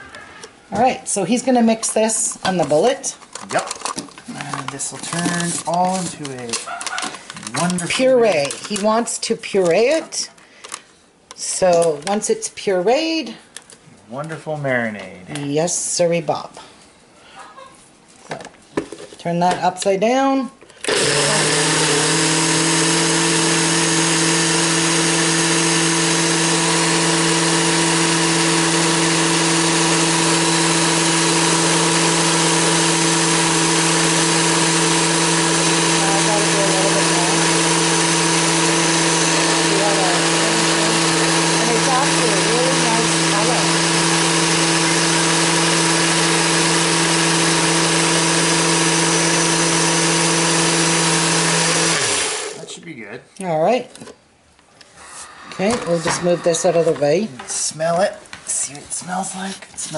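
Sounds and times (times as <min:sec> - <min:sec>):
blender motor running: 0:20.8 - 0:52.7, 0:55.4 - 0:57.0.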